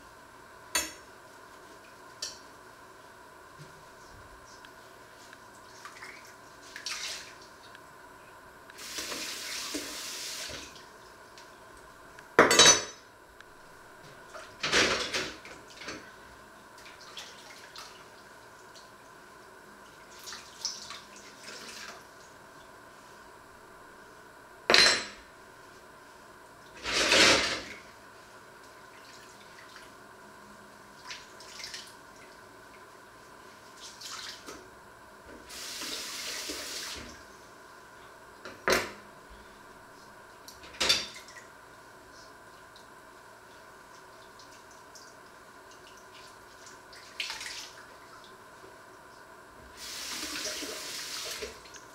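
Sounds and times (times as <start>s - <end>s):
running water: 49.8s - 51.8s.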